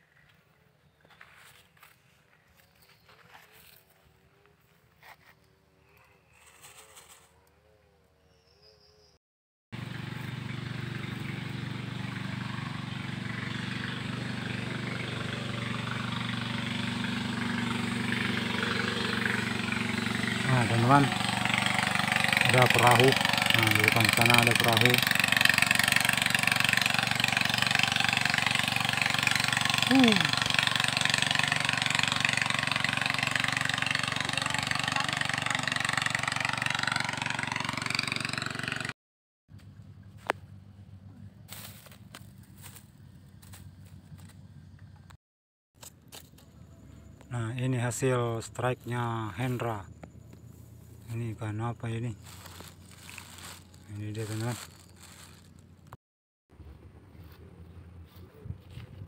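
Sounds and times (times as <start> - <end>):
boat motor humming: 9.8 - 38.9, 49.7 - 56.0.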